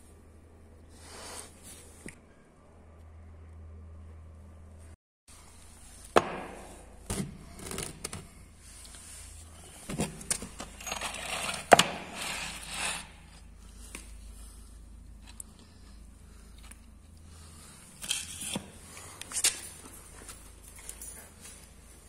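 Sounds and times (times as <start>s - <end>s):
board scraping: 11.0s - 13.2s.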